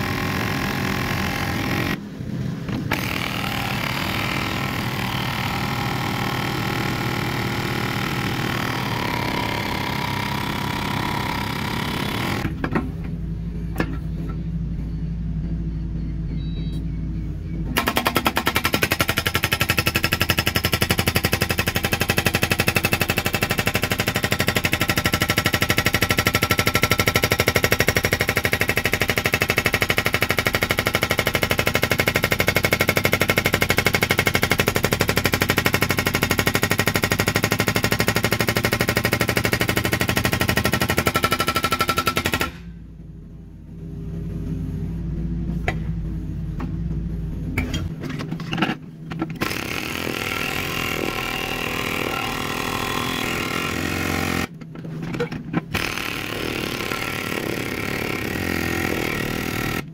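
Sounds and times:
excavator engine running: 0.0s - 59.9s
hydraulic breaker hammer pounding: 2.8s - 12.9s, 17.8s - 42.7s, 49.2s - 54.6s, 55.7s - 59.9s.

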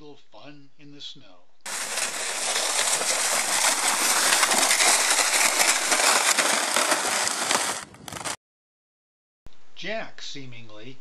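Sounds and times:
sled sliding over snow: 1.7s - 8.4s.

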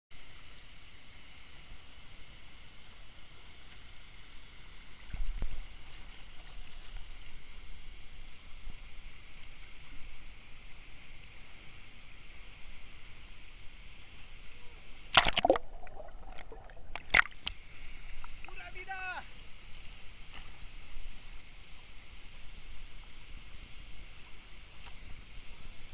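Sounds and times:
loud water splashes: 15.1s - 17.5s
water churning: 15.1s - 17.6s.

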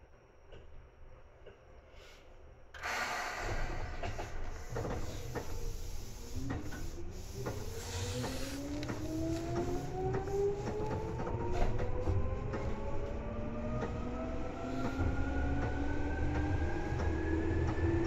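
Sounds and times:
train air hiss: 1.8s - 11.8s
traction motors whining: 2.8s - 18.0s
train car rumbling: 2.8s - 18.0s.

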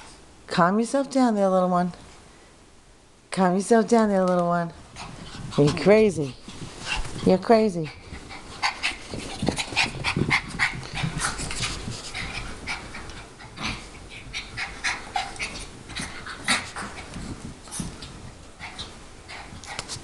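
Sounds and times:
dogs scuffling: 4.3s - 20.0s
dogs panting and huffing: 4.8s - 20.0s.

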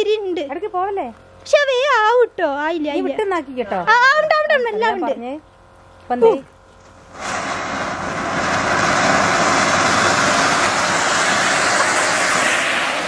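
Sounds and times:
firework spraying sparks hissing: 6.9s - 13.0s.

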